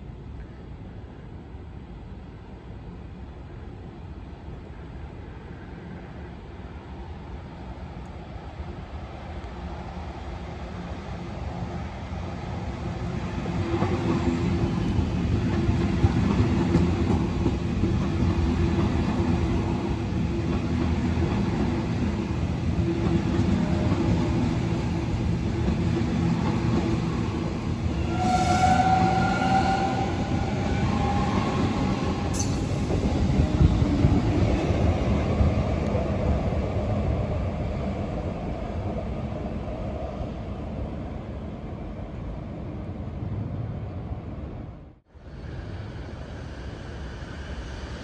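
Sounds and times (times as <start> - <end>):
train wheels rumbling on rails: 8.0 - 44.6.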